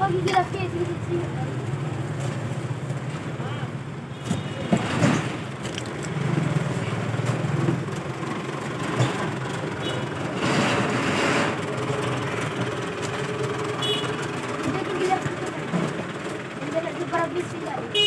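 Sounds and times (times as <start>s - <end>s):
market background noise: 0.0s - 18.0s
vehicle engine running: 5.3s - 18.0s.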